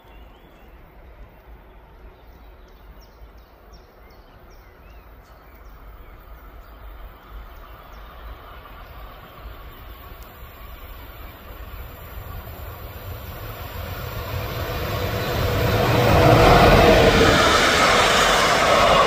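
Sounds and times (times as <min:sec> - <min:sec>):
outdoor noise: 0:00.0 - 0:19.0
approaching train: 0:05.8 - 0:19.0
wind rumble on microphone: 0:09.1 - 0:19.0.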